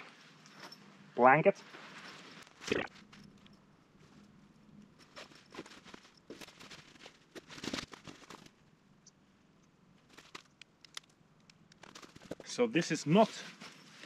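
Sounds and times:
blanket rustling: 0.1 - 3.2, 5.0 - 8.5.

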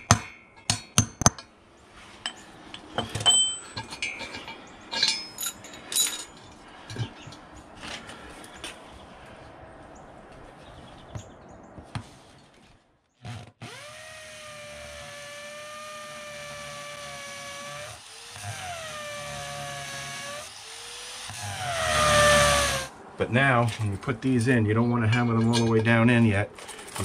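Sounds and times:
cordless drill boring into concrete: 13.3 - 22.9.

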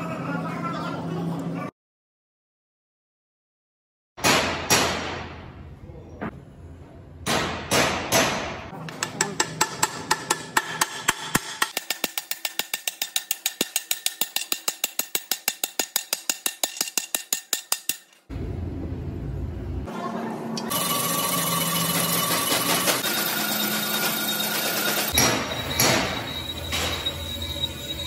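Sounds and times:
machine running: 18.3 - 28.0.

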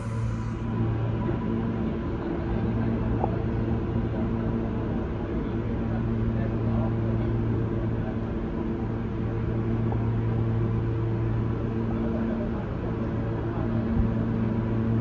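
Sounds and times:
held low tones: 0.0 - 1.4
subway train humming: 0.0 - 15.0.

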